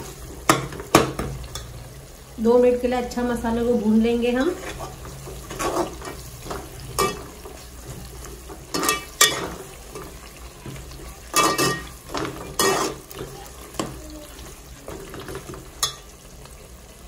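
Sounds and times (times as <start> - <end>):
spices sizzling in oil: 0.0 - 17.0
spoon scraping and clinking pot: 4.6 - 7.3, 8.6 - 10.1, 11.3 - 13.3.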